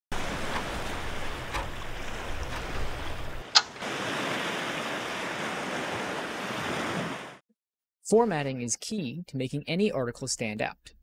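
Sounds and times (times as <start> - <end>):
ocean waves washing: 0.1 - 7.4.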